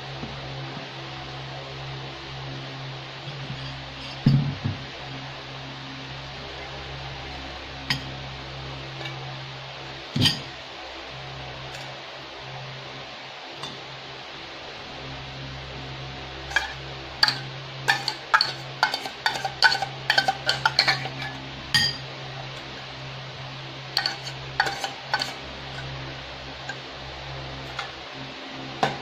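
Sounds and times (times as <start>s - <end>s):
steady low hum: 0.0s - 29.0s
tin can clinking on ceramic bowl: 16.5s - 22.0s, 24.0s - 25.4s.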